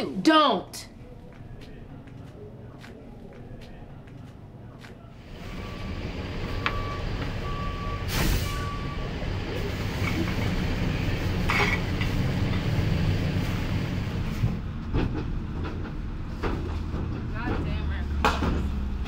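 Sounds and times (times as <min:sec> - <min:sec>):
large vehicle engine rumbling: 0:04.7 - 0:19.0
reversing alarm beeping: 0:05.4 - 0:09.2.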